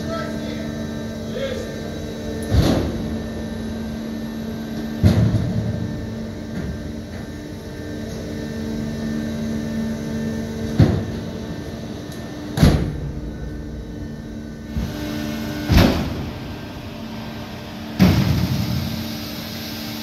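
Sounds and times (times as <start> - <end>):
steady machine hum: 0.0 - 20.0
heavy mechanical clunks: 2.4 - 3.6, 4.7 - 7.4, 10.6 - 11.3, 12.1 - 17.0, 18.0 - 19.0.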